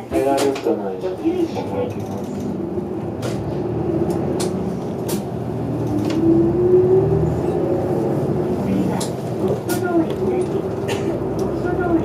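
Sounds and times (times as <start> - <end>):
bus engine and road noise: 0.0 - 12.0
drivetrain whine: 1.5 - 12.0
sharp clicks and rattles: 1.8 - 6.2.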